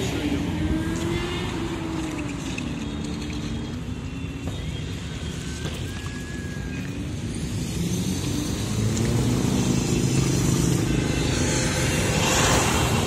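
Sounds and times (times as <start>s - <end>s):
traffic engine rumble: 0.0s - 13.0s
vehicle passing by: 7.3s - 13.0s.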